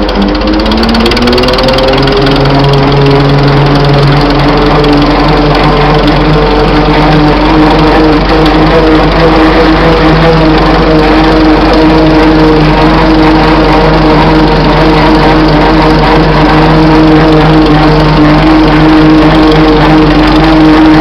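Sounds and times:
gear whine: 0:00.0 - 0:21.0
tractor engine running: 0:00.0 - 0:21.0.

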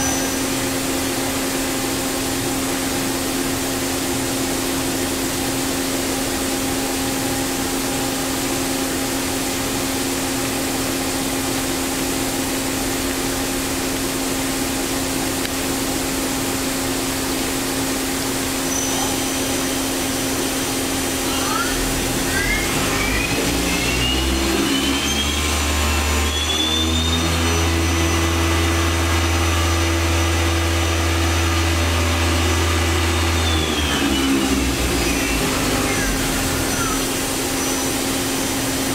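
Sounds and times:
spindle drive whine: 0:00.0 - 0:38.9.

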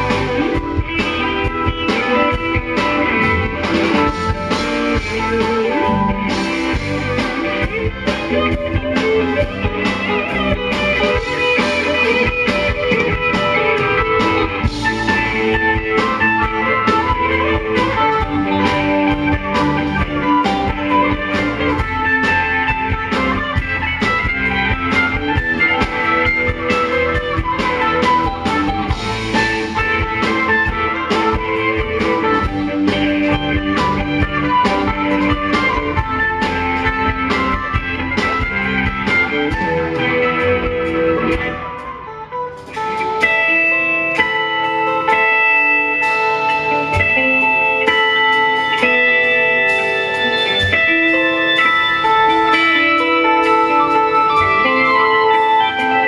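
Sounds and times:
steady drum beat: 0:00.0 - 0:41.9
bass guitar: 0:00.0 - 0:56.0
electric guitars: 0:00.0 - 0:56.0.

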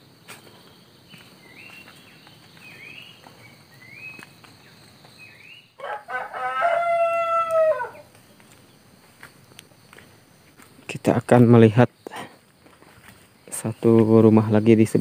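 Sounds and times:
high insect drone: 0:00.0 - 0:15.0
rooster crowing: 0:05.8 - 0:08.1.

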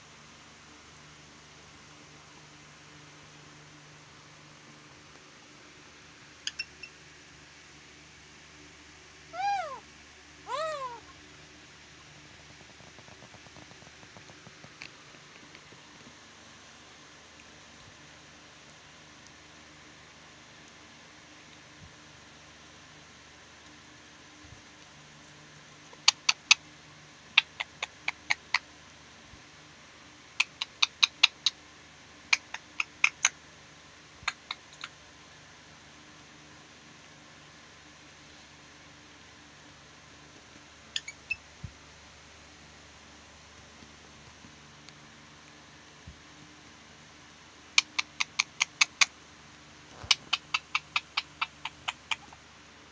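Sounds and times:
parakeet shrieking calls: 0:06.4 - 0:06.9, 0:09.3 - 0:09.8, 0:10.5 - 0:11.1.

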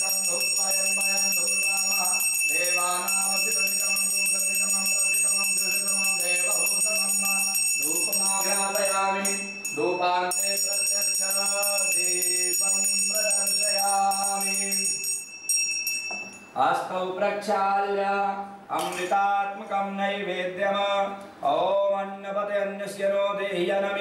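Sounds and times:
hand bell ringing rapidly: 0:00.0 - 0:16.5.

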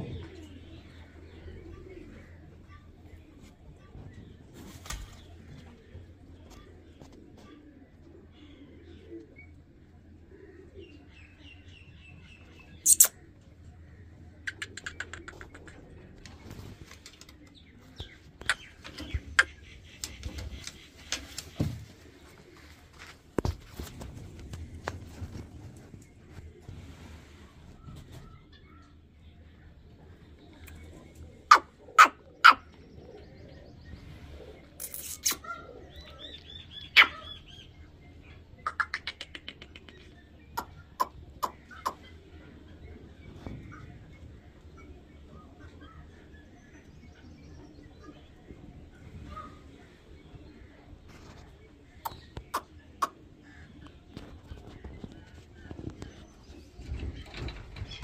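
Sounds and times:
birds chirping: 0:00.0 - 0:58.0
short sharp bird calls: 0:12.8 - 0:13.3.

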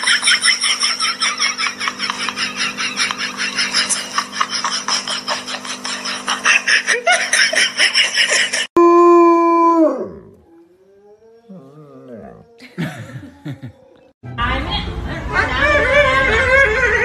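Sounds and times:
rapid giggling laughter: 0:00.0 - 0:08.7.

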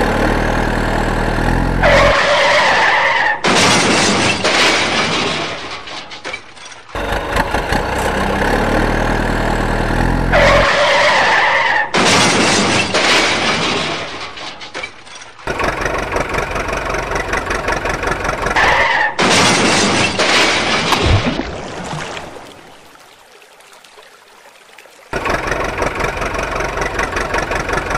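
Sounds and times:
truck engine running low: 0:00.0 - 0:03.2, 0:06.9 - 0:11.6, 0:15.4 - 0:20.4, 0:25.2 - 0:27.9
screech: 0:01.8 - 0:03.8, 0:10.3 - 0:13.5, 0:18.6 - 0:19.3.

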